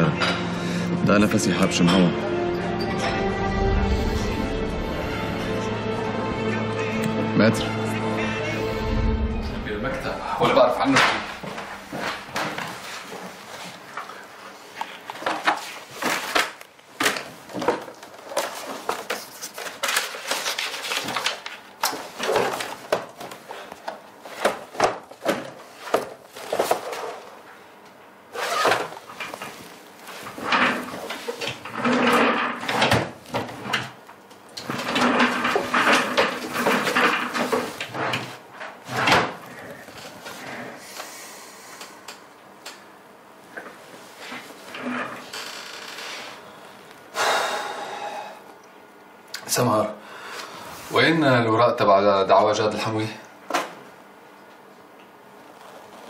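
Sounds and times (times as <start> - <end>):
papers and folders handled: 10.9 - 27.5.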